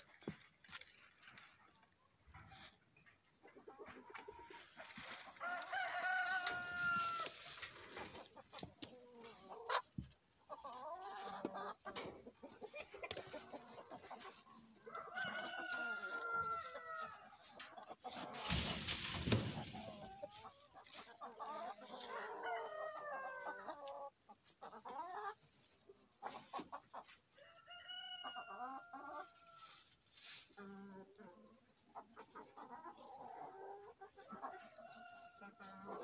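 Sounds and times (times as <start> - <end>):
chickens clucking: 0.0 - 36.0
rooster crowing: 5.4 - 7.4, 14.9 - 17.2, 27.4 - 29.6.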